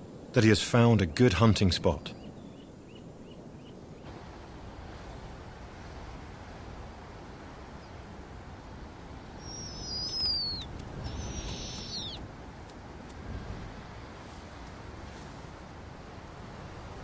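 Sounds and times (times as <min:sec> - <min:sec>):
owl squealing calls: 0:09.4 - 0:12.2.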